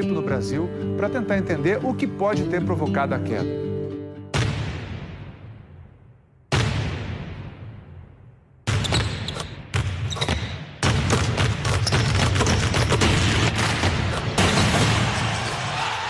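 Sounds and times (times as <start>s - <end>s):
arena crowd cheering: 14.6s - 16.0s.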